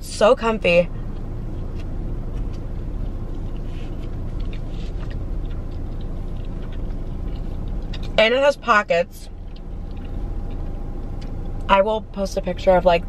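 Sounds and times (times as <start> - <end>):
car engine humming: 0.0 - 13.0
chewing bread: 1.1 - 8.2, 9.3 - 11.6.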